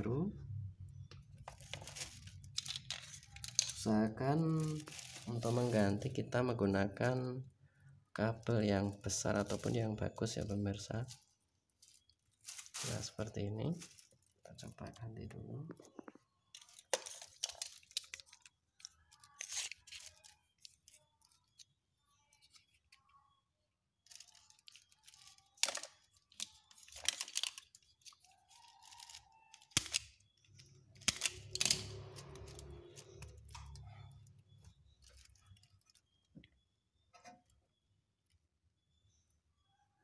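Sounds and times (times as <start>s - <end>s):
handling rustles: 1.4s - 3.9s, 4.5s - 5.8s, 11.8s - 14.4s.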